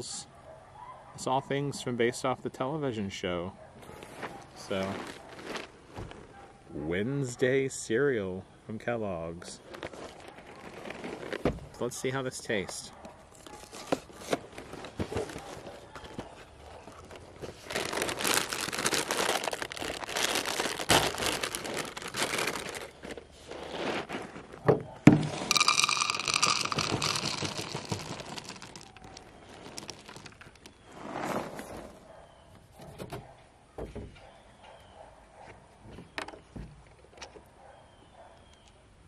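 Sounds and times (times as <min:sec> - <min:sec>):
plastic bag crinkling: 0:04.6 - 0:06.0, 0:09.6 - 0:11.4, 0:13.4 - 0:31.0
cereal pouring into a bowl: 0:25.2 - 0:30.7.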